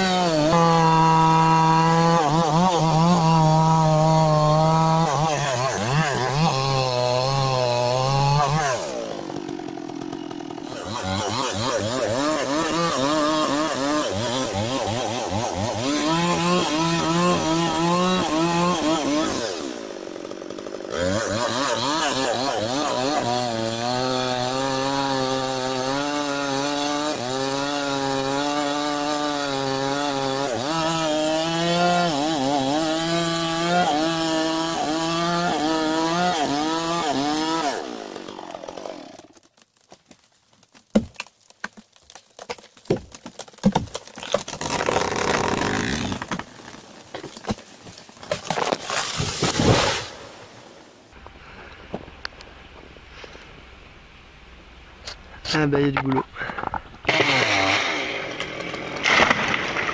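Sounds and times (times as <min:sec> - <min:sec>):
chainsaw cutting wood: 0:00.0 - 0:50.6, 0:56.5 - 0:59.9.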